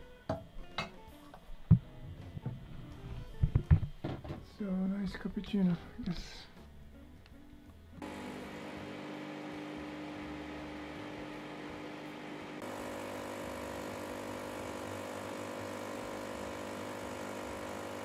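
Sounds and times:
espresso machine pump humming: 8.0s - 18.0s.

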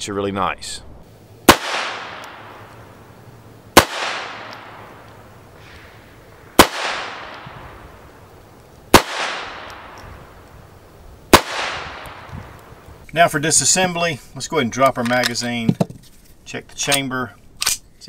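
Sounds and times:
pistol shots with echo: 1.4s - 3.1s, 3.7s - 8.1s, 8.9s - 10.4s, 11.3s - 12.6s.

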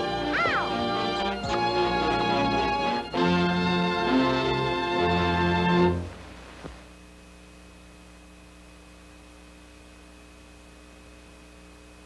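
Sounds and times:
electrical mains hum: 0.0s - 12.0s
faint hiss: 6.0s - 7.5s.

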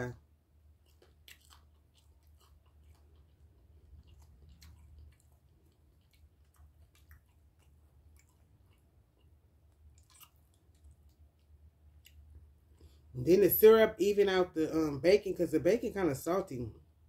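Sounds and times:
low steady hum: 0.0s - 17.0s
chewing soft food: 0.5s - 13.2s.

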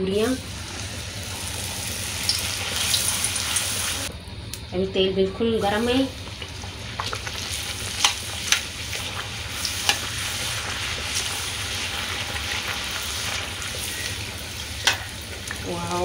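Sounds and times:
food sizzling in hot oil: 0.0s - 4.1s, 5.6s - 16.0s
metal spoon stirring oil: 6.2s - 15.6s.

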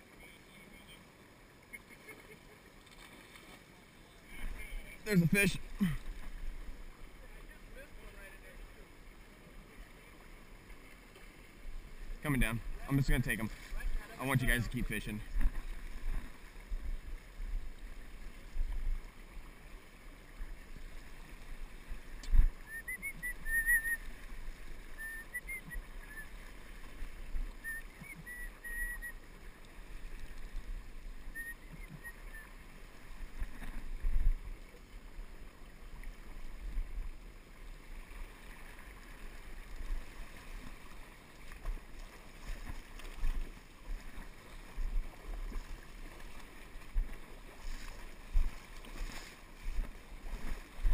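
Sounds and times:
rushing river water: 0.0s - 50.9s
faint high whistle-like chirps: 22.6s - 24.1s, 24.9s - 26.4s, 27.6s - 29.2s, 31.3s - 32.5s.

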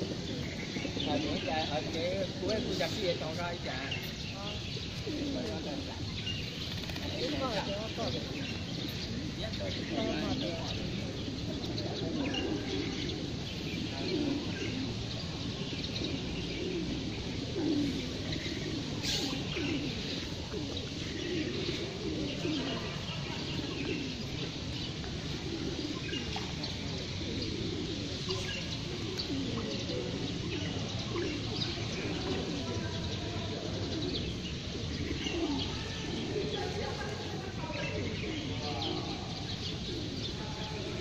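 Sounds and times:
pigeons cooing: 0.0s - 41.0s
small birds chirping: 0.0s - 41.0s.

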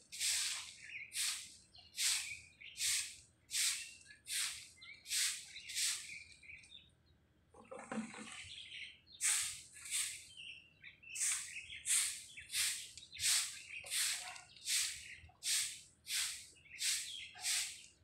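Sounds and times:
broom sweeping rough pavement: 0.0s - 6.2s, 9.2s - 10.2s, 11.1s - 17.9s.

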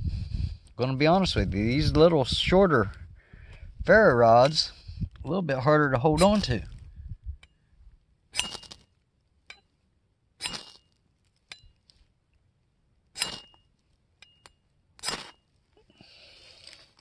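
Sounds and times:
machete scraping ferro rod: 6.2s - 6.6s, 8.3s - 8.9s, 10.4s - 11.0s, 13.2s - 13.7s, 15.0s - 15.5s.

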